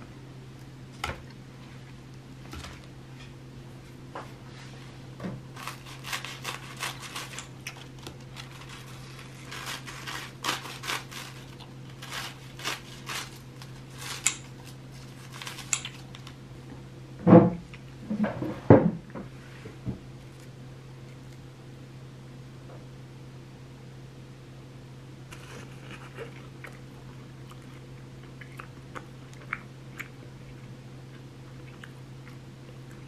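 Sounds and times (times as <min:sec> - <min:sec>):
crisp bread crunching: 0:05.5 - 0:16.4, 0:25.3 - 0:33.0.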